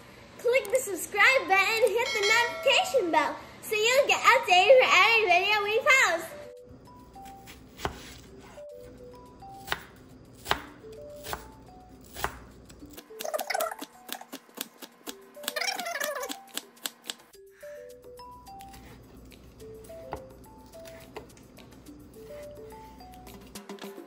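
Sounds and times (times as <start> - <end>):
light background music: 4.0 - 24.0
knife slicing on wooden board: 7.4 - 8.6.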